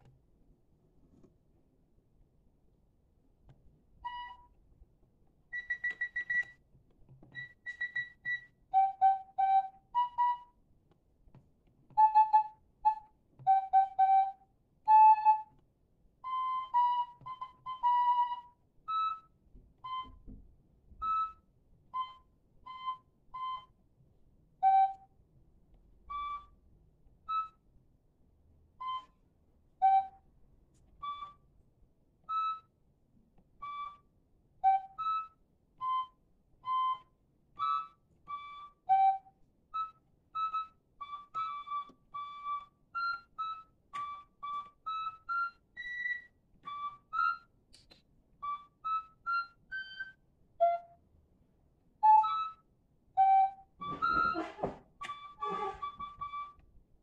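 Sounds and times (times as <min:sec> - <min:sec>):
digital keyboard melody: 0:05.5 - 0:06.5, 0:07.3 - 0:10.4.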